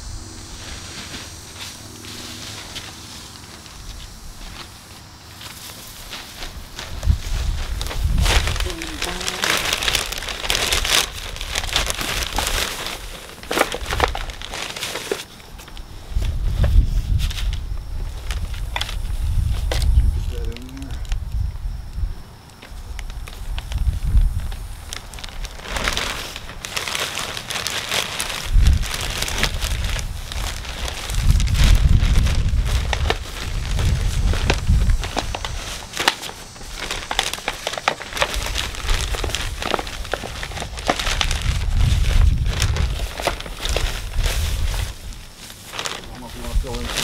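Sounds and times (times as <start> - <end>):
soil rustling by hand: 0.0 - 47.0
plastic bag crinkling: 0.6 - 16.4, 22.6 - 47.0.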